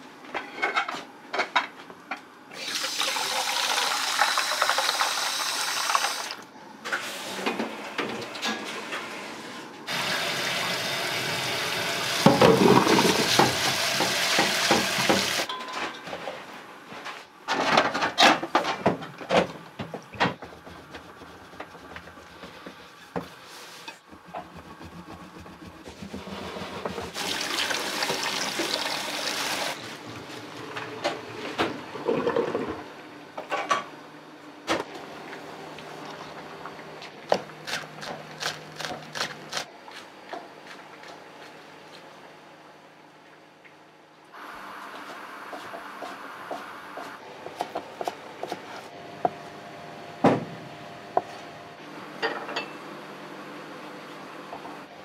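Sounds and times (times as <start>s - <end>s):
water running from kitchen tap: 2.6s - 6.4s, 9.9s - 15.5s, 27.1s - 29.8s
pots and utensils clattering: 12.2s - 16.4s.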